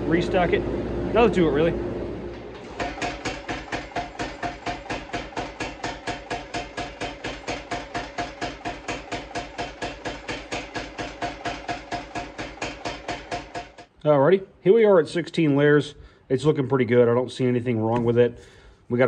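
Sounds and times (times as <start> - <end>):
power hammer clanging on steel: 2.4 - 13.9.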